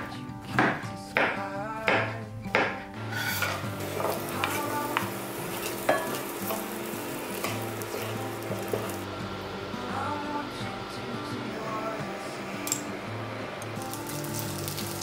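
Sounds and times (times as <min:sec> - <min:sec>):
knife chopping on wooden board: 0:00.0 - 0:02.8
spatula scraping and tapping pan: 0:03.1 - 0:09.0
food sizzling in frying pan: 0:03.1 - 0:15.0.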